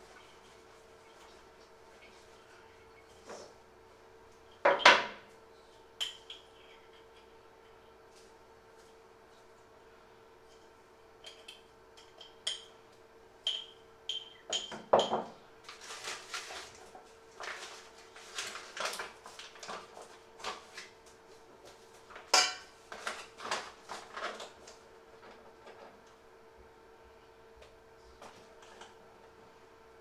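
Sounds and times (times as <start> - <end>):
spoon tapping glass jar: 13.4 - 15.3
paper bag crinkling: 15.7 - 21.0, 22.0 - 25.4.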